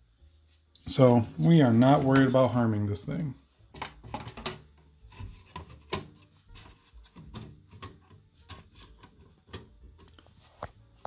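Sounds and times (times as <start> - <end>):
motherboard clicking and scraping on tray: 3.8 - 10.3.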